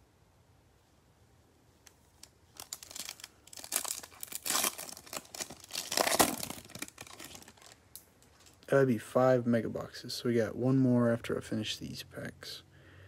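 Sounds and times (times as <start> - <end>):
foil wrapper tearing and crinkling: 2.2 - 8.6.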